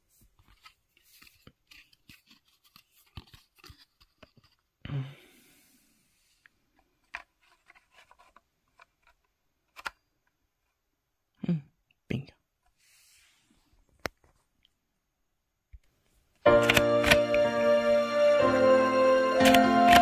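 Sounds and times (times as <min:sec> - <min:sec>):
handling plastic viewer and reels: 0:06.8 - 0:10.0.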